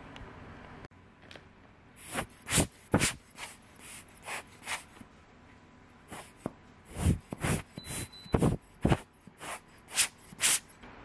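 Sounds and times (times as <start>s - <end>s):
air blower puffs: 2.0s - 5.0s, 6.1s - 10.7s.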